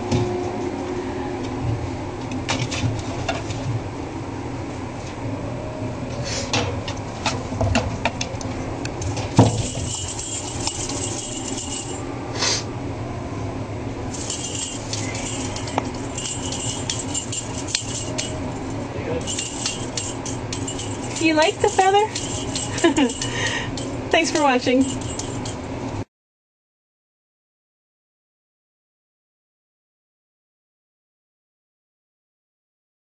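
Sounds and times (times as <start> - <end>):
light clinking and jingling: 9.5 - 12.0, 14.1 - 18.6, 19.2 - 25.7.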